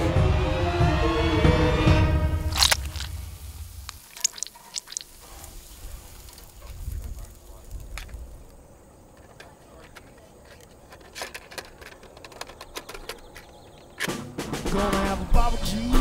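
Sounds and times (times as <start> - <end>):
goo dripping on burger patty: 2.5 - 5.3.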